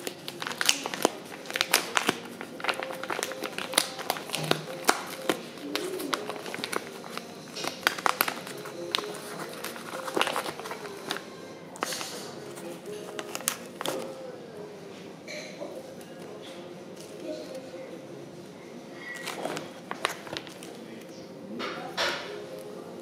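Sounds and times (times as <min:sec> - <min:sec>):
paper packet crinkling: 0:00.0 - 0:14.3, 0:19.0 - 0:21.1
faint music: 0:00.0 - 0:23.0.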